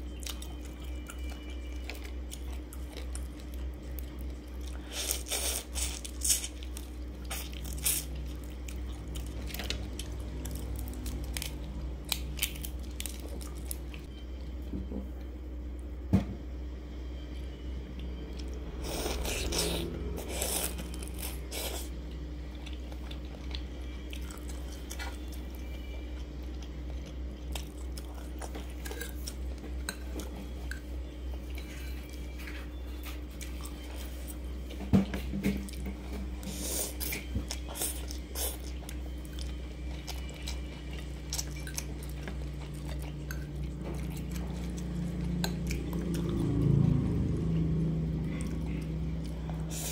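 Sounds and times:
steady low hum: 0.0 - 49.9
chewing noodles: 35.6 - 46.9.

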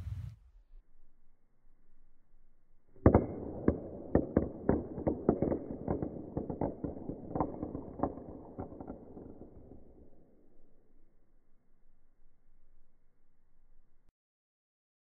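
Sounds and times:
dice clattering on wooden floor: 3.0 - 10.2.

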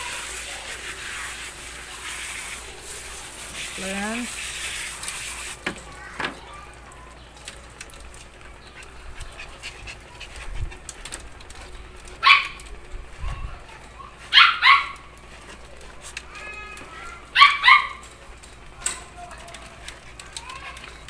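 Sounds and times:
small dog barking: 12.2 - 12.6, 14.3 - 15.0, 17.3 - 18.0.

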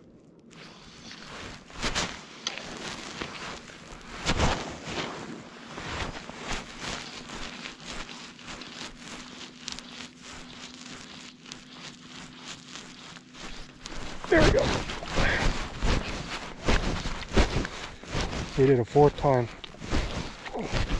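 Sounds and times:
fly line rasping through guides: 5.8 - 20.9.

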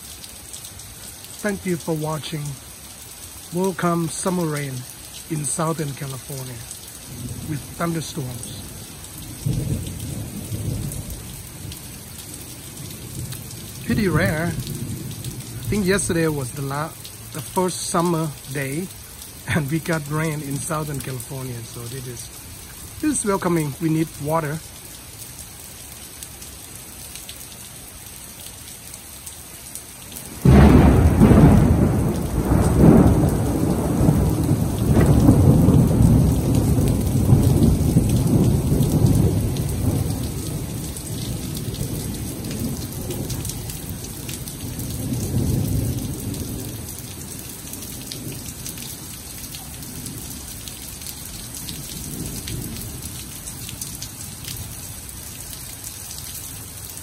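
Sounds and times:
heavy rain on pavement: 0.0 - 57.0
thunder rumbling: 7.1 - 18.5, 30.3 - 48.7.

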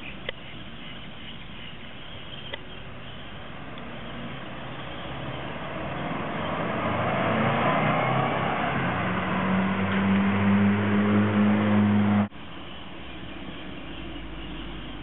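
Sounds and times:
car engine approaching: 1.9 - 15.0.

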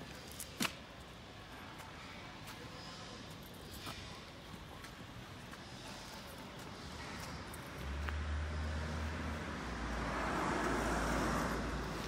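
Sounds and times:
tyre and road noise: 0.0 - 12.0
vehicle engine hum: 2.9 - 12.0.

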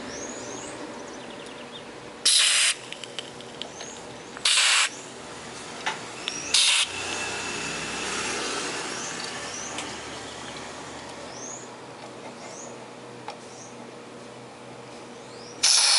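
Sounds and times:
faint birds chirping: 0.0 - 2.1, 3.5 - 5.2, 8.2 - 13.9
aerosol spray hissing: 2.3 - 2.8, 4.4 - 4.9, 15.6 - 15.9.

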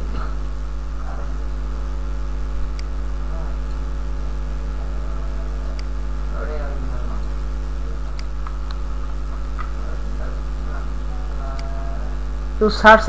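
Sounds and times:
electrical mains hum: 0.0 - 13.0.

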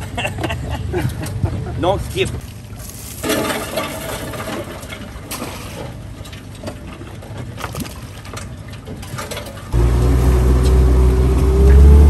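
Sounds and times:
boat motor idling: 9.8 - 12.0
boat motor revving: 9.8 - 12.0.

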